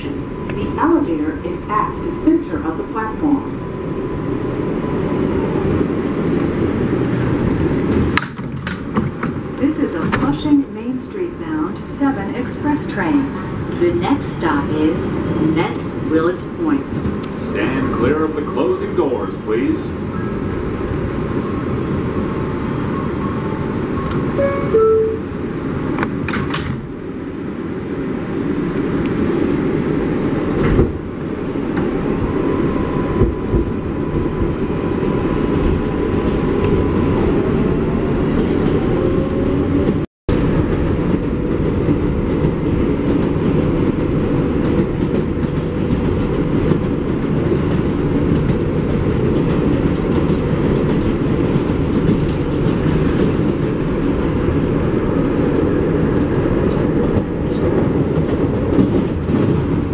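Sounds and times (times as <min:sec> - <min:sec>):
train wheels rumbling on rail: 0:00.0 - 0:59.9
clickety-clack of wheels: 0:40.7 - 0:54.3, 0:56.6 - 0:59.9.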